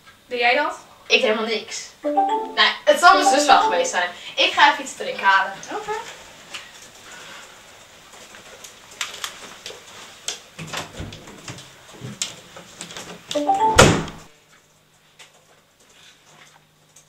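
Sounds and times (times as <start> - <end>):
door shutting with a bang: 13.7 - 14.2.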